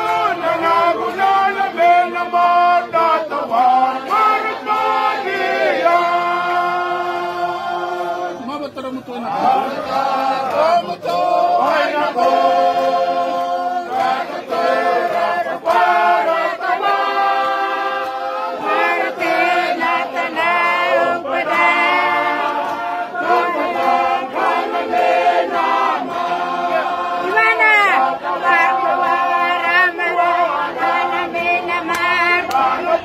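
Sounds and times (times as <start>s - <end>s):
choir singing unaccompanied: 0.0s - 33.0s.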